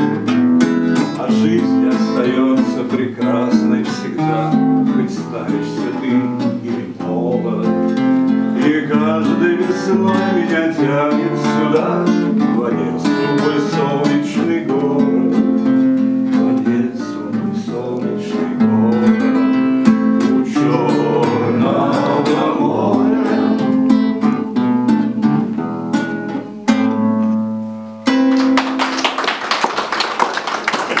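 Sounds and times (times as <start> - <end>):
acoustic guitar strumming: 0.0 - 28.9
man singing: 0.9 - 24.3
audience applause: 28.3 - 31.0.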